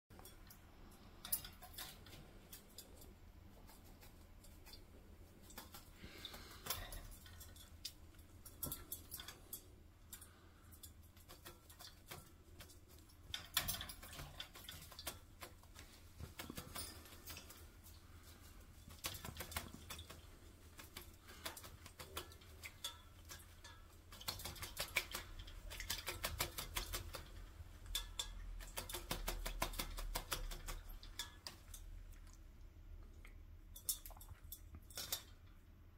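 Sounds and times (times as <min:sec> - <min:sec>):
bird splashing in water bowl: 0:05.4 - 0:32.4.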